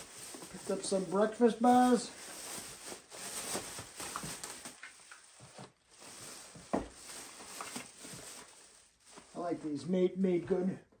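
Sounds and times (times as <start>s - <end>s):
plastic bags rustling: 0.0s - 10.2s.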